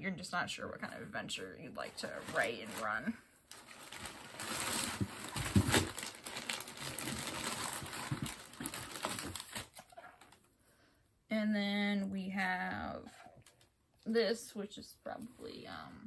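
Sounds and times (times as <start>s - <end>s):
packing paper rustling: 1.9s - 10.4s
paper crumpling: 1.9s - 10.4s.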